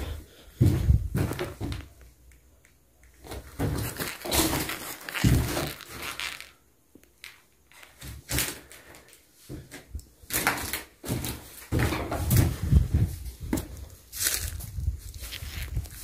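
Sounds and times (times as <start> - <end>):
footsteps on dry leaves and debris: 3.6 - 6.5, 13.8 - 16.0.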